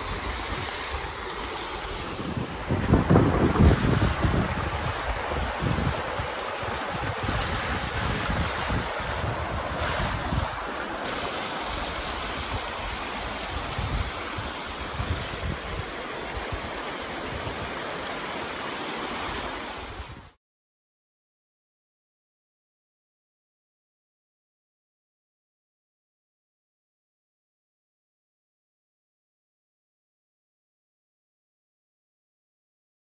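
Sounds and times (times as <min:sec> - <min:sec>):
wind buffeting microphone: 0:00.0 - 0:10.8, 0:11.6 - 0:17.7
stream rushing over rocks: 0:00.0 - 0:20.4.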